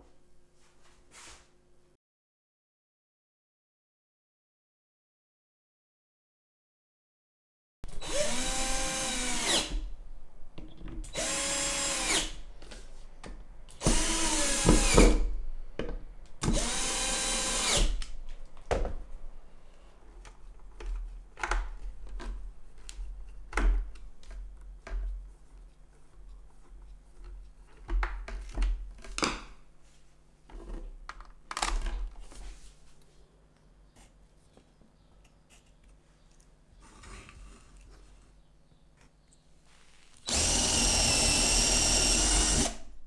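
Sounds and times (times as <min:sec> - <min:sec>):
power drill boring through plywood: 0:08.0 - 0:09.8, 0:11.1 - 0:12.3, 0:13.8 - 0:15.2, 0:16.4 - 0:18.0, 0:40.2 - 0:42.9.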